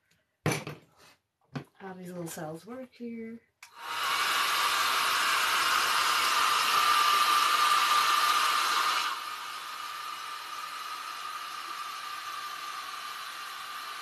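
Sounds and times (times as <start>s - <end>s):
hair dryer blowing air: 3.6s - 14.0s.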